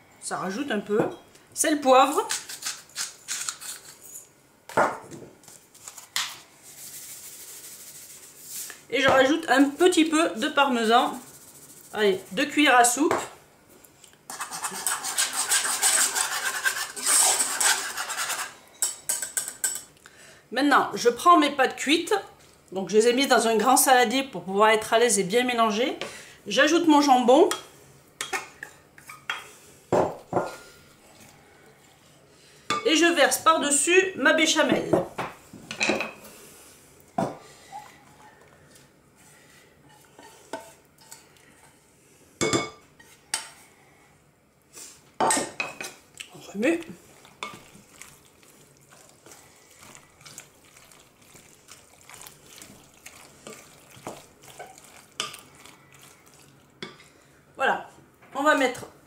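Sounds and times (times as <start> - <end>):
whisk scraping a metal saucepan: 14.3 - 19.8, 39.2 - 41.7, 47.4 - 57.1.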